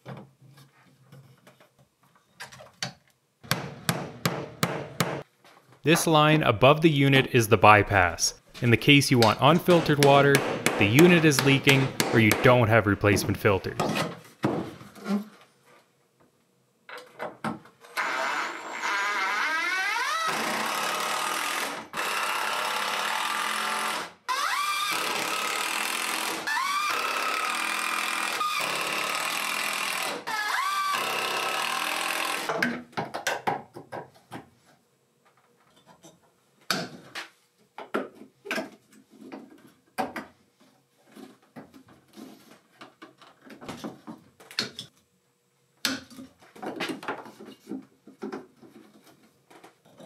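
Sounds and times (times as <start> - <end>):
hand tools clicking and knocking: 9.1 - 12.7.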